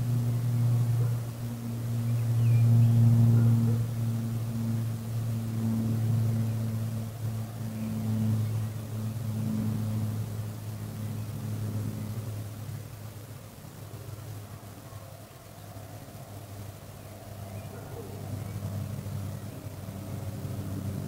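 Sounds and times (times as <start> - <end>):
distant engine drone: 0.0 - 21.0
faint bird chirp: 2.0 - 3.8, 16.9 - 20.3.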